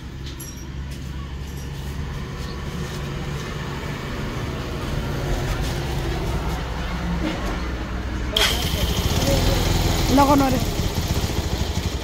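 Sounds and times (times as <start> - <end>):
vehicle engine running: 8.4 - 12.0.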